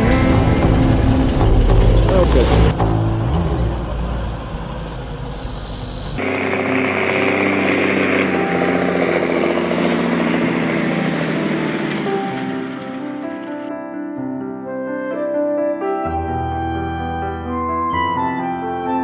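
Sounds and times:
vehicle engine and road rumble: 0:00.0 - 0:13.7.

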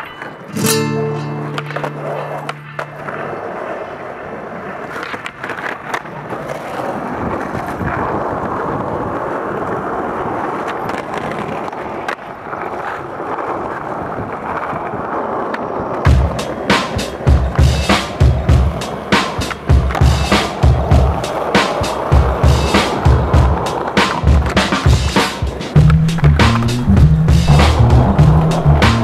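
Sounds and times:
skateboard clacks: 0:00.0 - 0:29.0
skateboard wheels rolling on stone: 0:00.0 - 0:29.0
heavy music beat: 0:16.1 - 0:29.0.

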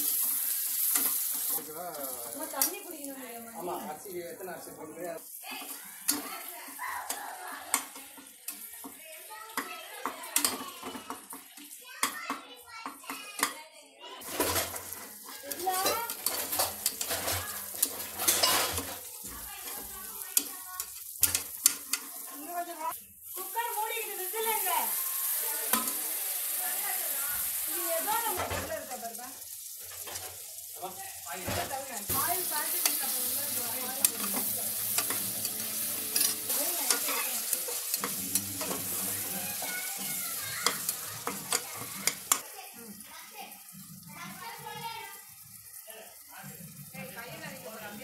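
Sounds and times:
oil sizzling: 0:00.0 - 0:13.5, 0:14.1 - 0:48.0
metal spoon scraping and clinking: 0:14.2 - 0:22.5, 0:32.0 - 0:42.4.

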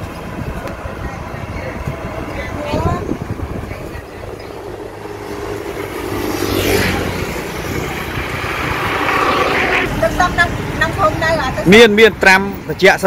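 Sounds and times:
car passing: 0:00.0 - 0:12.8
motorbikes passing: 0:00.0 - 0:13.0.

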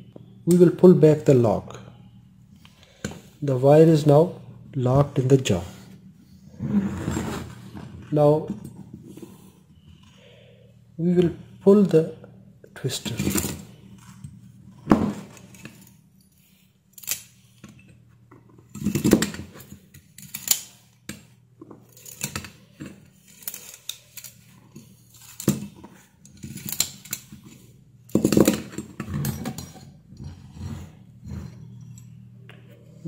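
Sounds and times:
twisting pliers clicking and rattling: 0:15.3 - 0:30.3.

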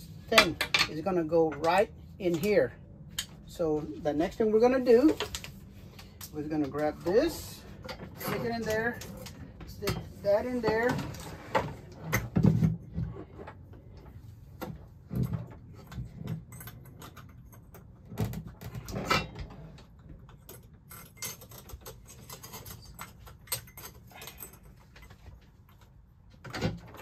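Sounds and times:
small metallic clicks and rattles: 0:15.1 - 0:27.0.

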